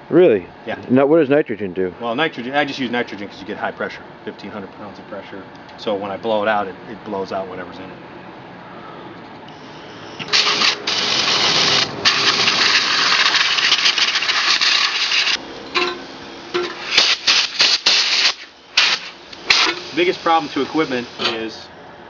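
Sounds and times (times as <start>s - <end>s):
blow gun air hissing: 9.5s - 15.4s, 16.7s - 21.2s.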